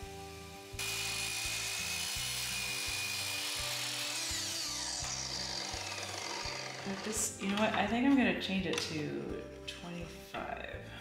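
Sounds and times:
miter saw whining: 0.8s - 7.3s
saw cutting wood: 0.8s - 7.4s.

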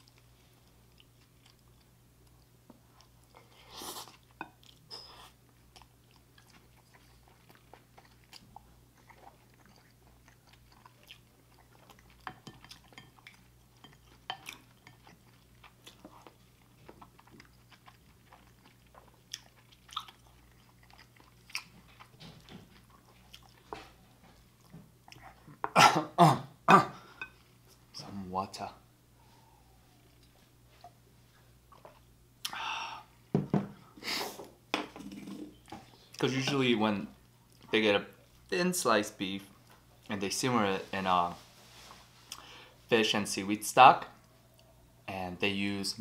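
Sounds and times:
person chewing food: 0.0s - 25.8s
faint low hum: 0.0s - 46.0s.

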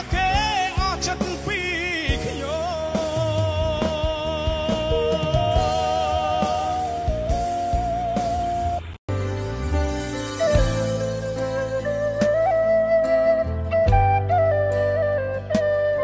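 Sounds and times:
person singing pop song: 0.0s - 7.5s
instrumental backing: 0.0s - 16.0s.

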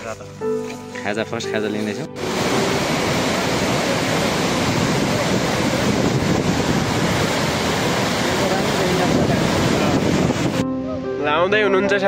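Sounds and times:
loud rushing noise: 2.2s - 10.7s.

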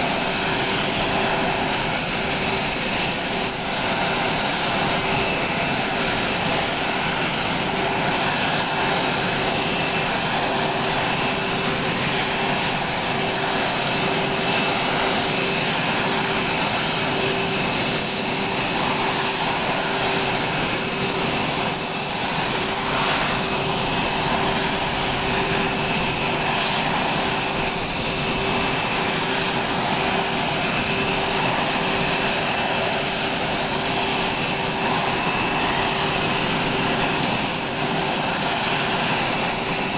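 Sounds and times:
jet engine whine: 0.0s - 39.9s.

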